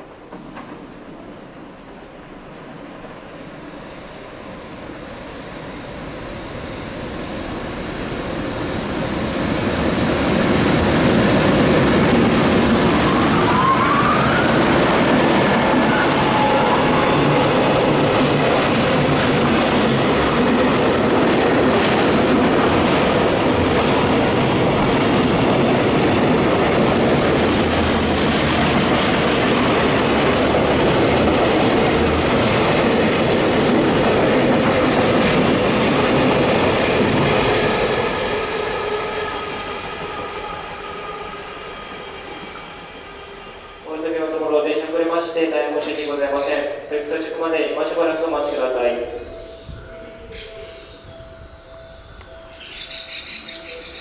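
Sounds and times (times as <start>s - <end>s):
train wheels clattering on rail: 0.2s - 3.2s, 8.2s - 13.4s, 14.3s - 42.6s.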